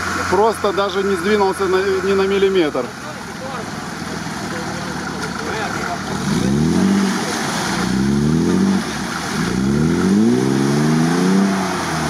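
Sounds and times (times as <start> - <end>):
engine revving hard: 5.7 - 12.0.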